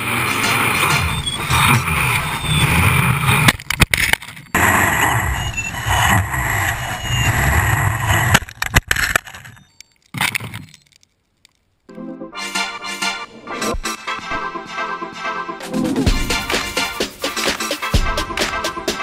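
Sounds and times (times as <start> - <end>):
quadcopter motors whirring: 4.5 - 8.3.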